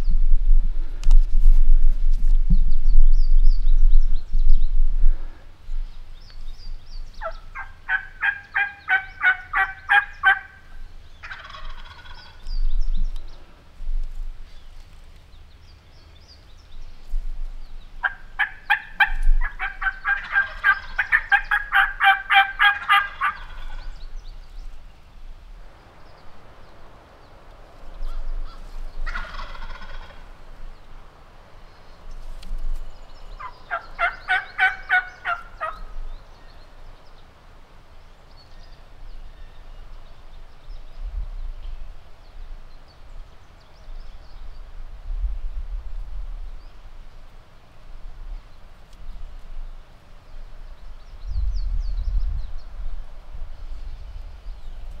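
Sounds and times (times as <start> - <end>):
turkey call yelping: 7.2 - 12.4, 18.0 - 23.8, 28.1 - 30.2, 33.4 - 35.9
turkey gobbling: 7.2 - 12.4, 18.0 - 23.9, 28.0 - 30.2, 33.4 - 35.9.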